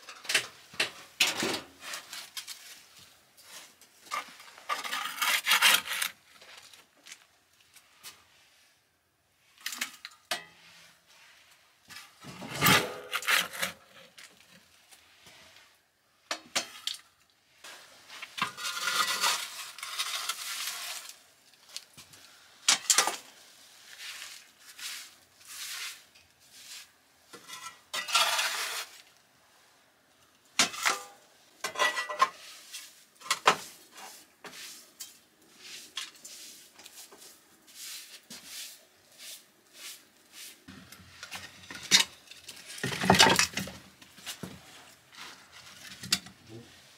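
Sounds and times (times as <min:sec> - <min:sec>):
straw broom sweeping: 0:07.8 - 0:08.8, 0:10.6 - 0:12.2, 0:17.5 - 0:22.6, 0:23.2 - 0:27.4, 0:32.3 - 0:41.5.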